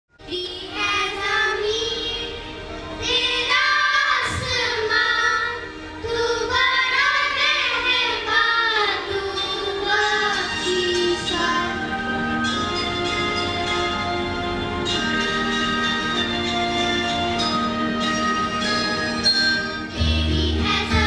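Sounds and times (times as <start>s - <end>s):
children singing together: 0.3s - 13.8s, 19.9s - 21.0s.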